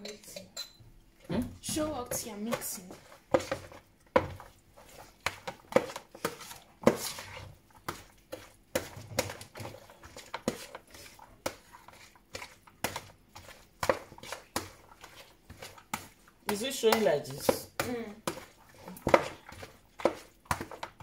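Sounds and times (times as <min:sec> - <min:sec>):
spoon clinking against bowl: 0:00.0 - 0:00.8
spoon scraping bowl: 0:02.1 - 0:21.0.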